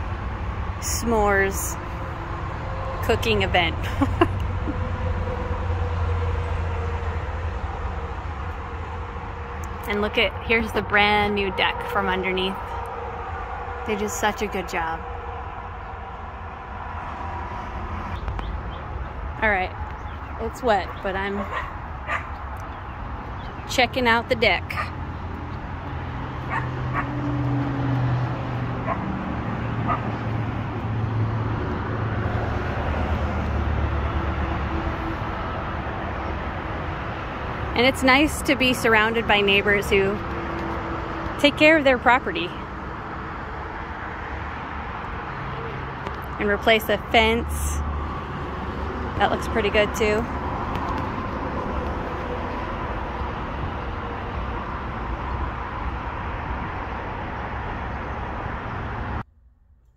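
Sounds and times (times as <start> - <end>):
low outdoor rumble and hum: 0.0 - 45.3.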